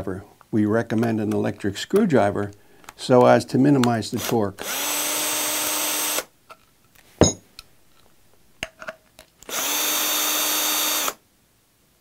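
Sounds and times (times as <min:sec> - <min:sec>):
cordless electric screwdriver running: 0:04.2 - 0:06.3, 0:09.4 - 0:11.2.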